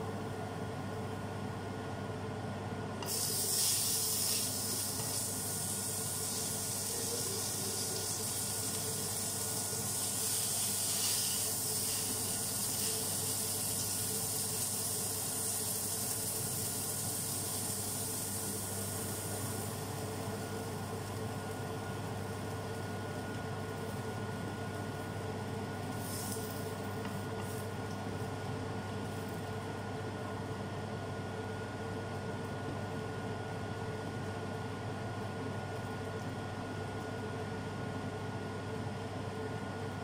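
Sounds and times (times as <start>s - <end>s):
batter sizzling in a frying pan: 3.1s - 22.9s, 25.9s - 27.8s.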